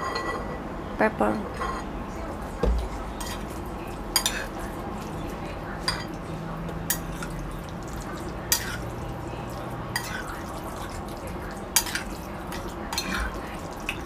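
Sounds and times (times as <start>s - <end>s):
utensils clinking against ceramic bowl: 3.2s - 6.2s, 6.8s - 14.0s.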